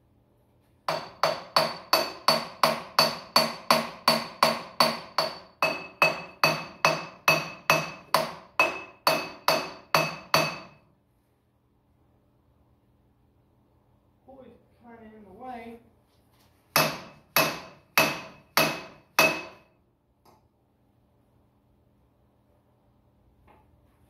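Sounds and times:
hammer clanking on metal: 0.9 - 10.8, 16.8 - 19.6.

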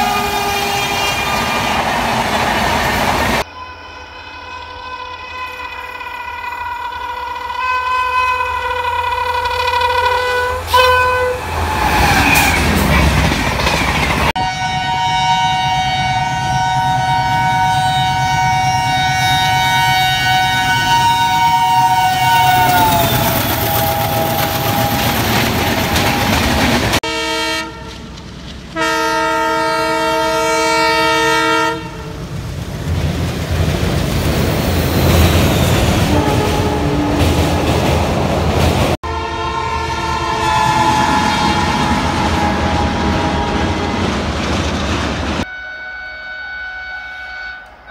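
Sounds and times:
locomotive horn blasts: 0.0 - 1.7, 3.4 - 12.4, 14.4 - 26.3, 27.0 - 28.0, 28.7 - 32.2, 36.0 - 37.4, 39.0 - 44.1, 45.4 - 47.9
train rumble and rail clatter: 0.0 - 45.5.

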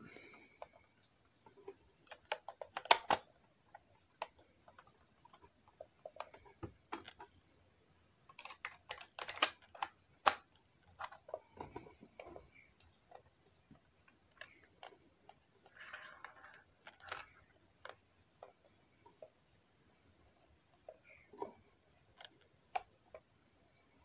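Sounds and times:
battery cover handling: 8.3 - 11.8.

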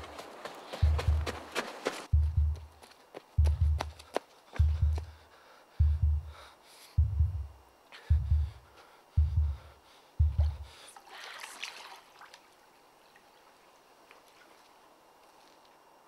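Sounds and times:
faint outdoor background hiss: 0.0 - 16.0
deep heavy bass thumps: 0.8 - 1.4, 2.1 - 2.7, 3.4 - 4.0, 4.6 - 5.2, 5.8 - 10.8.

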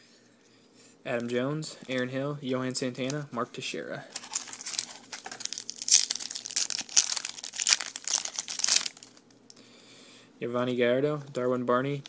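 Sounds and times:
foil wrapper crinkling: 4.1 - 9.3.

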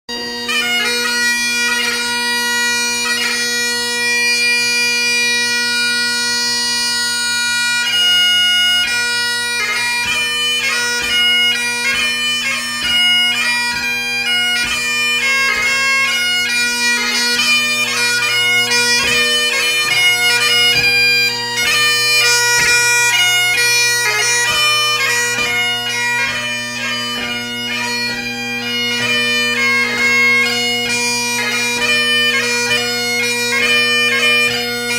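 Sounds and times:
bagpipe playing: 0.1 - 34.9.

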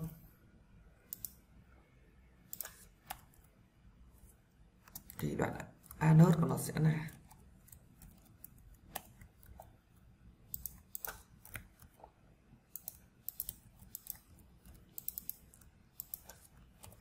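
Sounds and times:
computer keyboard keystrokes: 2.5 - 3.4, 10.5 - 12.0, 12.7 - 17.0.

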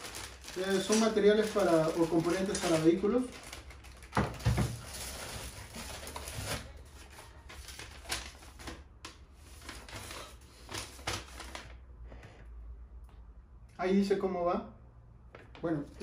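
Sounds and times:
paper crinkling and rustling: 0.0 - 11.8
plastic packaging rustling: 0.0 - 12.0.

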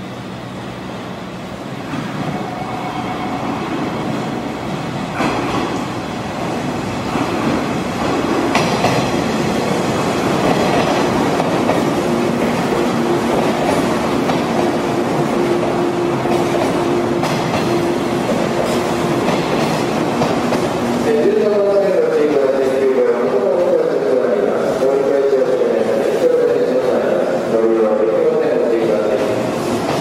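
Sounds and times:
train wheels clacking over rail joints: 5.1 - 5.9, 7.1 - 9.3, 10.2 - 21.0.

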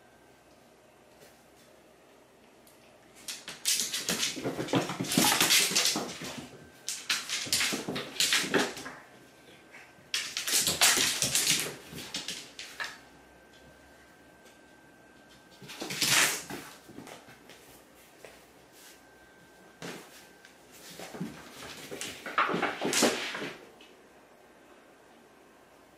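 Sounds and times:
cat paws scrabbling: 3.2 - 9.0, 10.1 - 13.0
toy balls skittering on floor: 3.2 - 9.0, 10.1 - 13.0.

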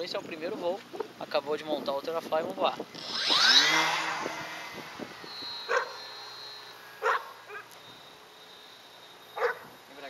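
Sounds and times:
model plane motor whine: 2.9 - 10.0
dog barking: 5.7 - 6.0, 7.0 - 7.7, 9.4 - 9.6
dog yipping: 5.7 - 6.1, 7.0 - 7.7, 9.4 - 9.7.

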